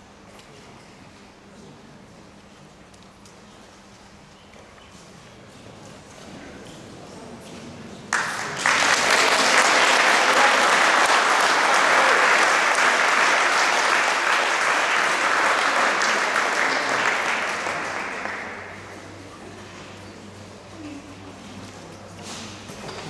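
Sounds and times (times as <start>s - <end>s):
audience applauding: 8.1s - 18.9s.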